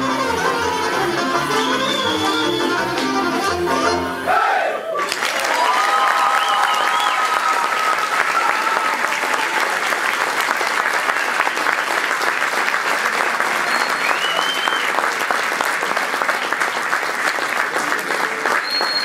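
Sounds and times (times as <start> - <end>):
audience applauding: 5.0 - 19.0.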